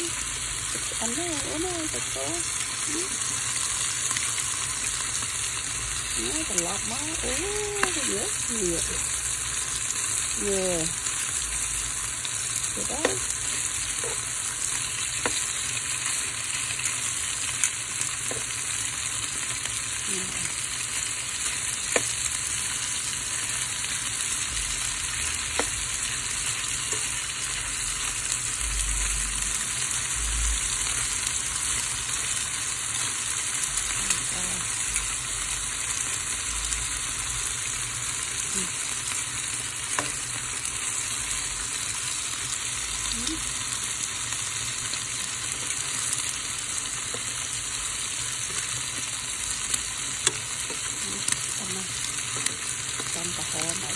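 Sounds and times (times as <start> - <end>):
meat sizzling in a frying pan: 0.0 - 53.9
metal tongs clicking on pan: 50.2 - 51.4.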